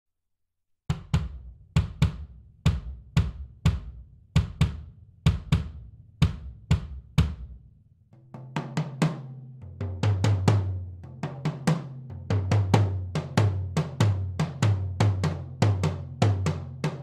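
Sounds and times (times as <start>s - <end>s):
drum kit slow steady beat: 0.9s - 7.6s.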